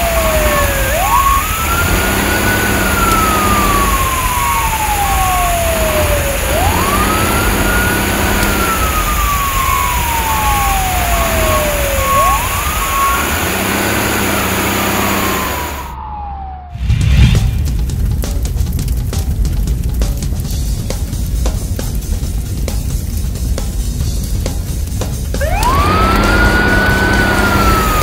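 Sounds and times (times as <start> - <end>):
fire engine siren wailing: 0.0 - 16.9, 25.4 - 28.0
low engine rumble: 0.0 - 28.0.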